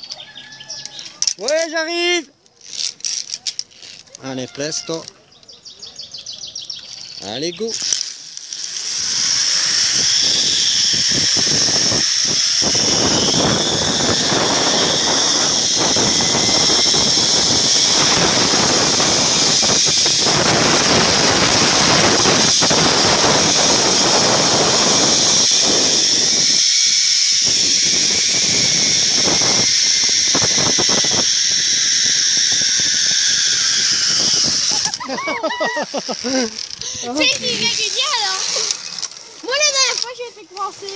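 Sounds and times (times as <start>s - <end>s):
zip-line pulleys whining on cable: 0.0s - 5.1s, 6.8s - 40.9s
wind noise on microphone: 9.0s - 35.0s.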